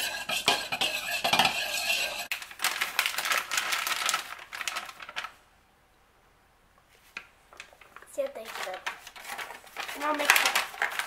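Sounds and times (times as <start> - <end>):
wire whisk scraping plastic bowl: 0.0 - 2.3.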